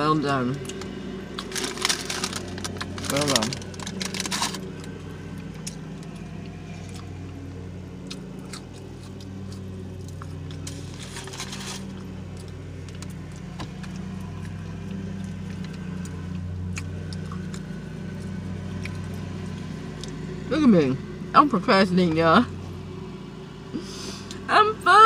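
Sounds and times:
low hum in car cabin: 0.0 - 25.0
chewing and mouth sounds: 8.0 - 10.9, 12.0 - 20.2.

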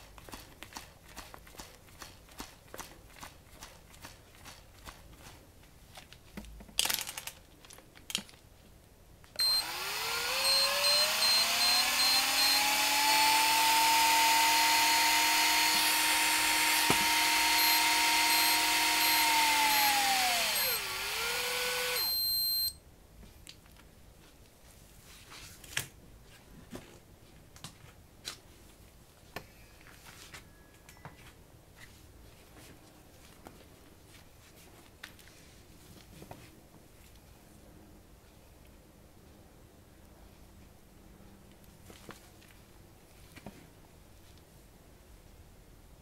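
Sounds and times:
high electronic beep: 9.4 - 9.7, 10.4 - 12.6, 17.5 - 20.8, 21.9 - 22.8
electric reel motor whine: 9.4 - 22.7.

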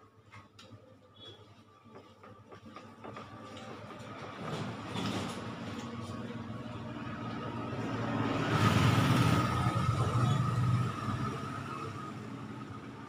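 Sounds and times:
motor vehicle passing by: 4.3 - 13.0.

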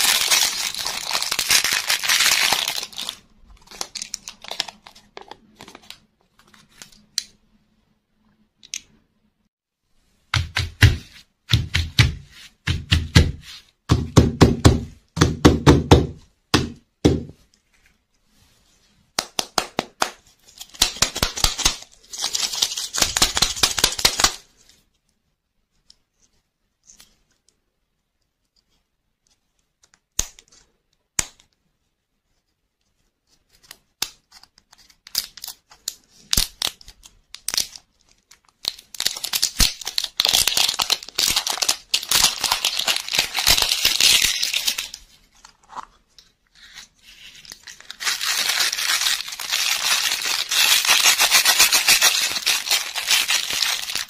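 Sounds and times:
plastic wrapper crinkling and tearing: 0.0 - 6.0, 20.4 - 24.4, 34.4 - 54.0.

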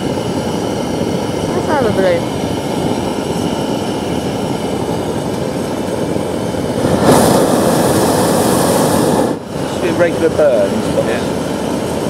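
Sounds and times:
propane burner rushing: 0.0 - 12.0.

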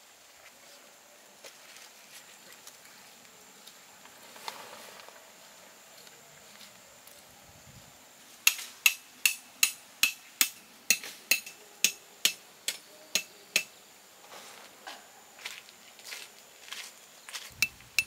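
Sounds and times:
hammer striking metal tent stake: 8.4 - 13.7.

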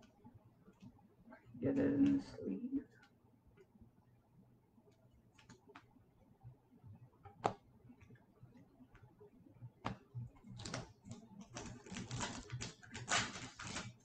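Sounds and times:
foil wrapper crinkling: 11.6 - 14.0.

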